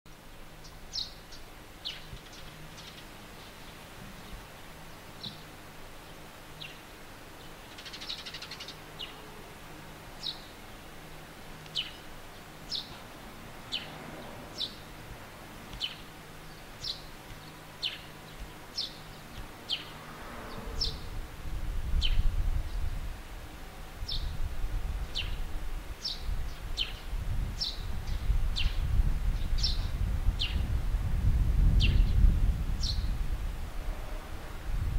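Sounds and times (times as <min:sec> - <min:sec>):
sparrow chirping: 0:00.6 - 0:03.8, 0:07.4 - 0:09.2, 0:10.2 - 0:10.6, 0:11.7 - 0:13.0, 0:13.7 - 0:15.0, 0:15.7 - 0:20.0, 0:20.6 - 0:21.1, 0:24.0 - 0:24.4, 0:26.0 - 0:30.6, 0:32.8 - 0:33.1
low rumble: 0:19.9 - 0:23.0.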